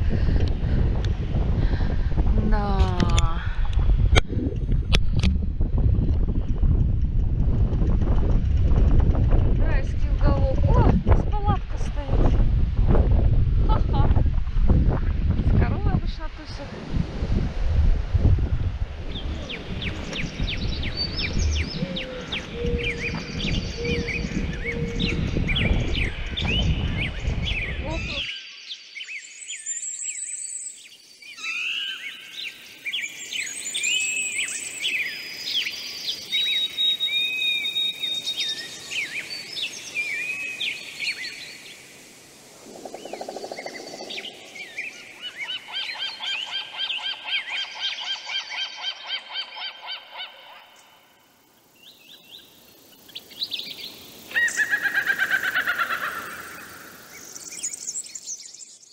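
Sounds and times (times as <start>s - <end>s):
songbirds singing: 19.0s - 58.9s.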